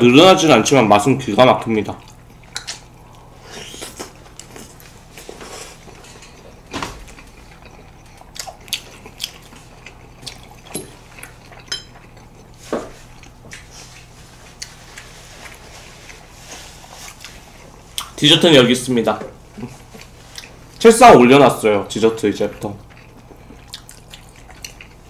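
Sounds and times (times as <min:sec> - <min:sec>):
wet chewing and slurping: 0:02.0 - 0:18.2, 0:19.6 - 0:20.8, 0:22.8 - 0:25.0.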